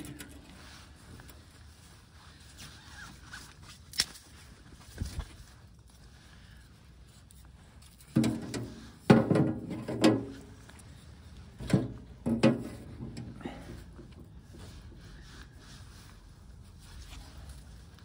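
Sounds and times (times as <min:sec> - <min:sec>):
knocks on steel wood stove: 0:08.2 - 0:10.3.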